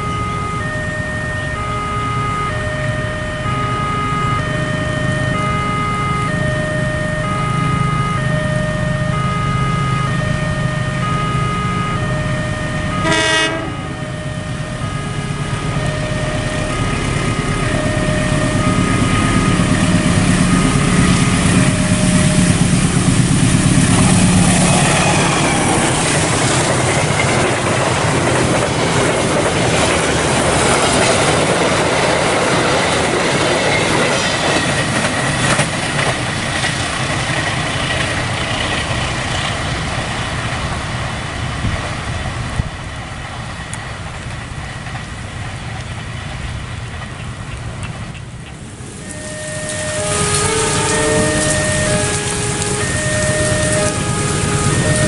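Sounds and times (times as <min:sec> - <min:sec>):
train horn: 0:00.0 - 0:27.6, 0:48.9 - 0:55.0
diesel locomotive rumble: 0:00.0 - 0:55.0
train coaches rushing and clattering: 0:12.7 - 0:55.0.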